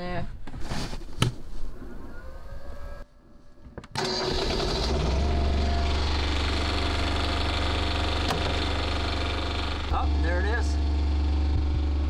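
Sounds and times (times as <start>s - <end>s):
generator engine running: 4.0s - 12.0s.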